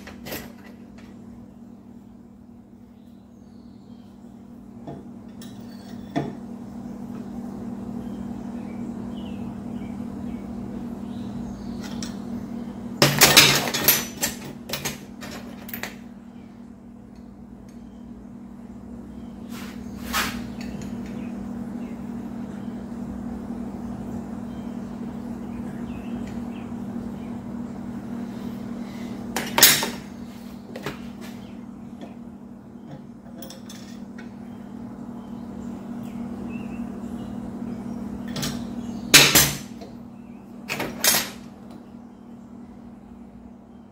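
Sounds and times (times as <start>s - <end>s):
steady low hum: 0.0s - 43.9s
metal clinks and clanks: 5.4s - 6.3s.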